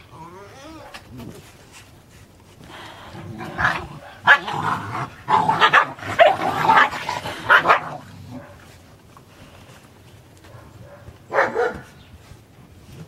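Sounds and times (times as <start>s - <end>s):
puppies barking: 3.4s - 8.6s, 10.5s - 12.0s.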